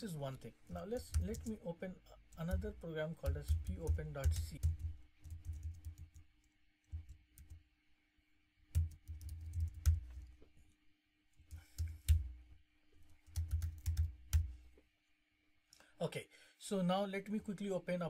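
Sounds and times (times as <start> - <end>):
typing on computer keyboard: 0.7 - 1.6, 2.3 - 6.2, 8.7 - 10.3, 11.5 - 12.3, 13.2 - 14.5.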